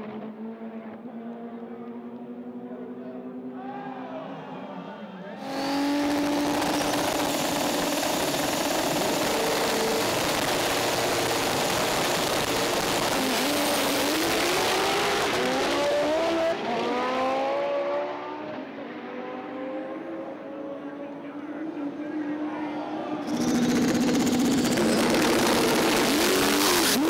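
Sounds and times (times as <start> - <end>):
cars accelerating through gears: 5.4 - 7.8, 8.5 - 21.1, 23.1 - 27.0
drag car engines revving: 5.4 - 20.3, 23.1 - 27.0.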